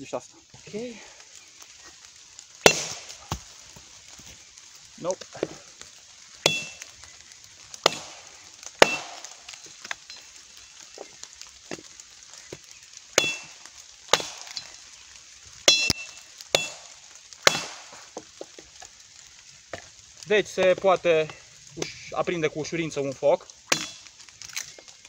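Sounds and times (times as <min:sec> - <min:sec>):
machete chopping wood: 0:02.6 - 0:03.5, 0:06.4 - 0:06.8, 0:07.8 - 0:08.2, 0:08.8 - 0:09.3, 0:13.2 - 0:14.6, 0:15.7 - 0:16.8, 0:17.4 - 0:18.0, 0:23.7 - 0:24.0.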